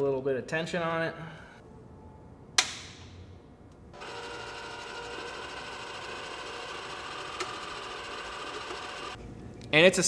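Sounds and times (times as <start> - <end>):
wire-feed motor whirring: 4.0 - 9.2.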